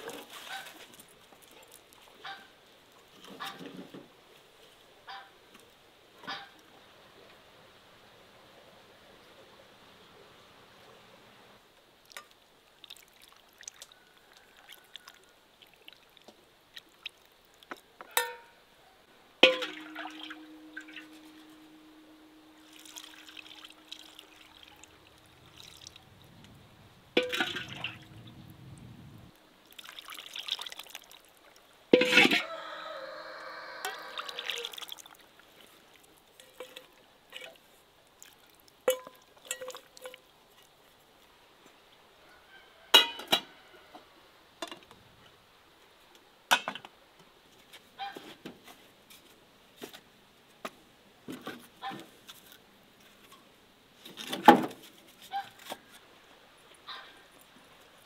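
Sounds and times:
enamel pots knocking and clinking: 19.4s - 21.1s
enamel ringing tone: 19.6s - 24.5s
wet sloshing: 22.6s - 26.6s, 27.2s - 28.5s.

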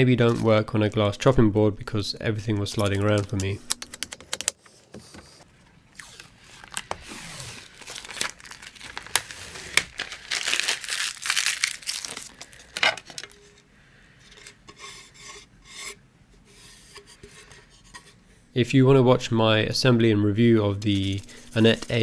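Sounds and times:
packaging crinkling and tearing: 5.9s - 13.4s.

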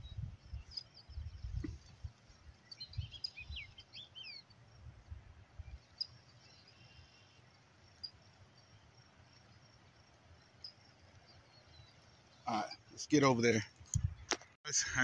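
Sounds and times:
small birds chirping: 0.0s - 14.5s.

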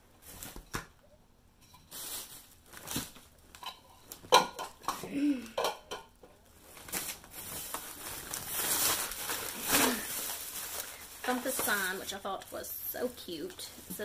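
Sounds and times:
plastic containers knocking and clattering: 3.6s - 6.4s.

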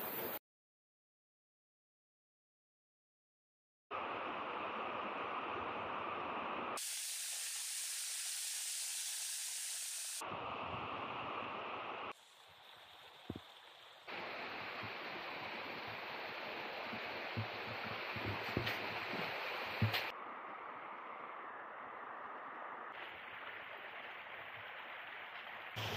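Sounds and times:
rushing stream water: 3.9s - 6.8s, 10.1s - 20.2s, 22.9s - 25.9s.

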